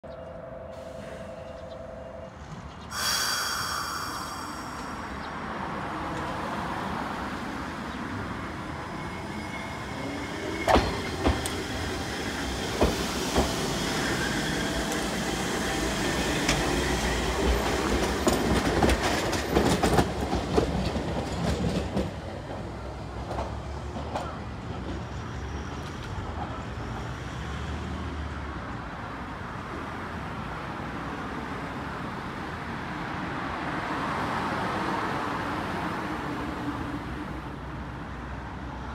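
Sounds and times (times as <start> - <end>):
tram motor and wheel noise: 0.1 - 28.6
short steady tone: 2.9 - 5.7.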